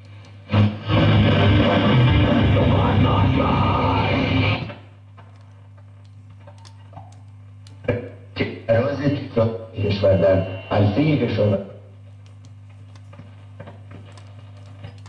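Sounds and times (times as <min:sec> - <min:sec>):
low hum from radio: 0:00.0 - 0:15.0
rock music on radio: 0:00.5 - 0:04.7.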